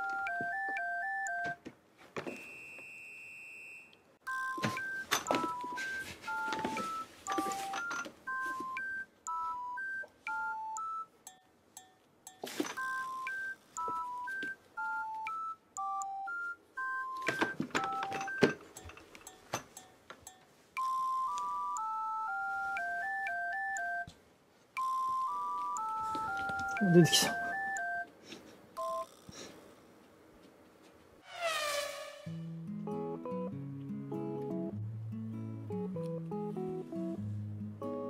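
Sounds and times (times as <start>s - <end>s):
beep-like melody: 4.3s - 24.1s, 24.8s - 28.1s.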